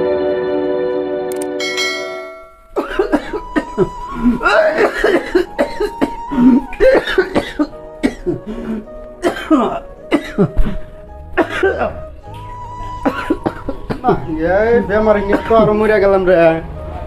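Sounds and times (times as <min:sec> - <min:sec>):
background music: 0:00.0 - 0:17.0
man coughing: 0:02.8 - 0:03.7, 0:04.8 - 0:06.2, 0:06.9 - 0:08.4, 0:09.2 - 0:10.8, 0:11.4 - 0:12.0, 0:13.1 - 0:14.1.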